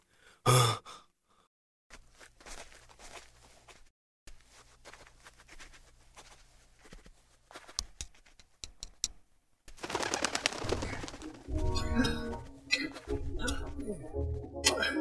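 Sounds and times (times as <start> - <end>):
soft footsteps: 1.9 - 8.6
crows wings flapping: 9.7 - 11.5.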